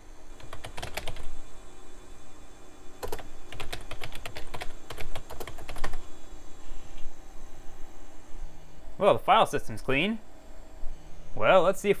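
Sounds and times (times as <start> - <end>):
keyboard typing: 0.4 - 1.3, 3.0 - 6.0.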